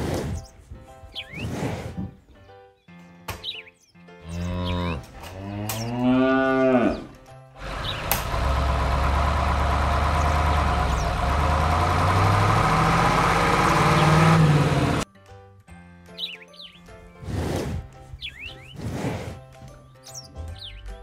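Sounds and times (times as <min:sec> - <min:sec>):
cow mooing: 0:04.2 - 0:07.2
tractor engine running: 0:07.6 - 0:15.0.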